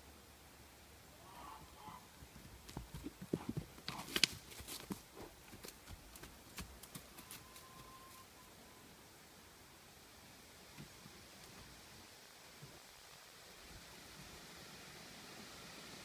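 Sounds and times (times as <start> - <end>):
hooves thudding on dirt: 1.6 - 8.0.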